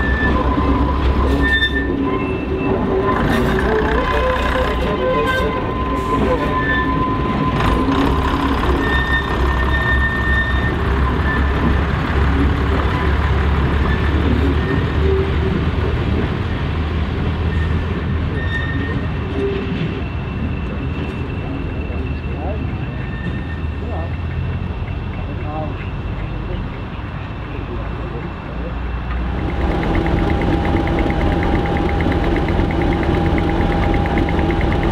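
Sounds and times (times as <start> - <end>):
diesel train engines rumbling: 0.0 - 34.9.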